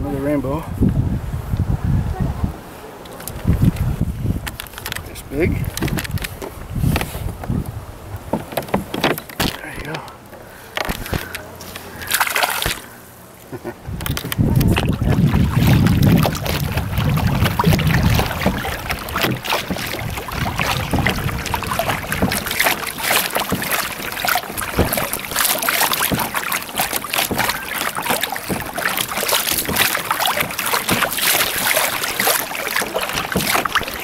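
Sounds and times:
wind rumble on microphone: 0.0 - 9.0, 13.7 - 22.9
waves lapping against kayak hull: 2.6 - 34.0.

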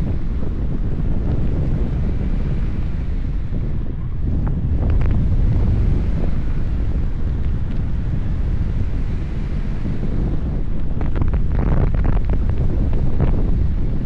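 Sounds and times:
wind rumble on microphone: 0.0 - 14.0
sharp crackles: 10.8 - 13.4.

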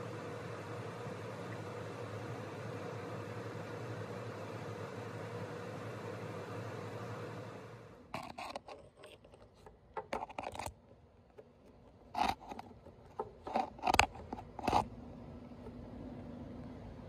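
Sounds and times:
background hum: 0.0 - 17.0
irregular scrapes and scratches: 8.1 - 15.0.

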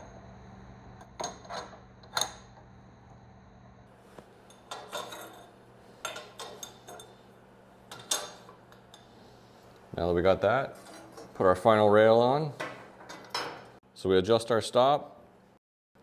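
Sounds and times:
steel tubes clinking on metal table: 4.4 - 7.2, 7.9 - 9.1.

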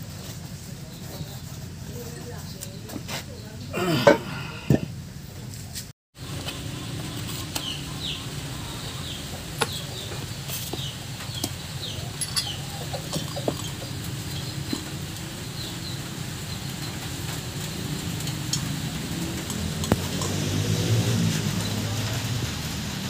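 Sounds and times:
birds chirping: 6.2 - 22.8.

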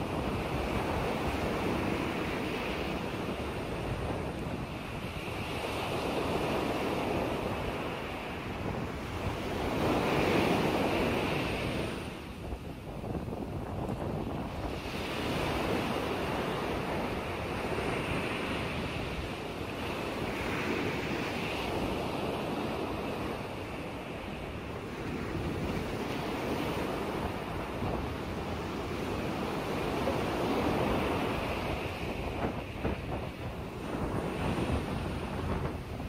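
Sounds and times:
waves washing and lapping: 0.0 - 36.0
wind blowing across microphone: 0.0 - 36.0.

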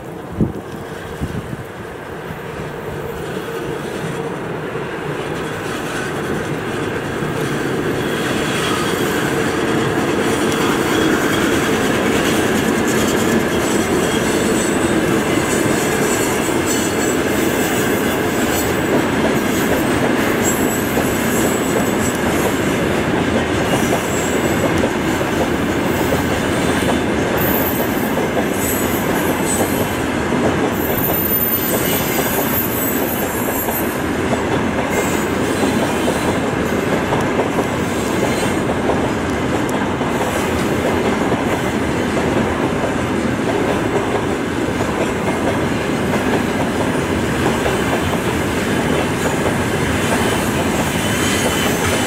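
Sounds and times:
train wheels rumbling on rail: 0.0 - 52.0
high wheel squeals: 27.4 - 29.9, 30.8 - 34.1, 50.2 - 52.0.

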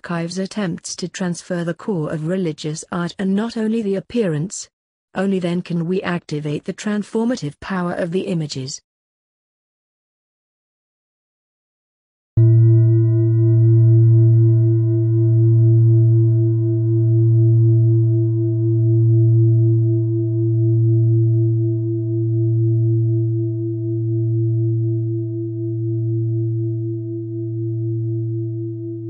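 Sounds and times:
deep bell-like metallic tone: 12.4 - 29.0.

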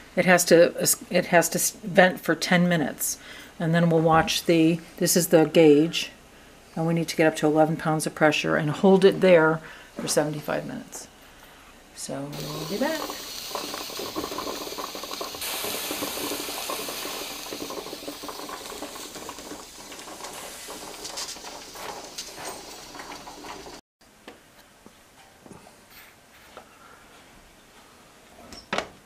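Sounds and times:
steam hissing: 12.3 - 23.8
pressure canner rattling: 12.4 - 23.8.

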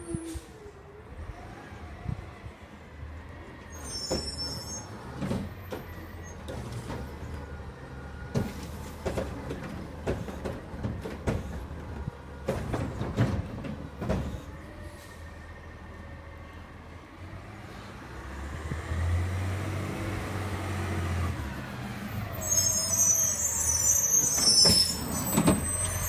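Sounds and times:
knocks and clunks: 5.1 - 7.4, 8.2 - 14.5.

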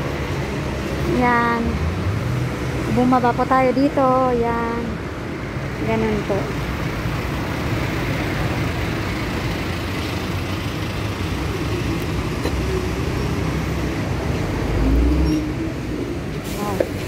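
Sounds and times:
bus engine rumble: 0.0 - 17.0
street traffic: 0.0 - 17.0.

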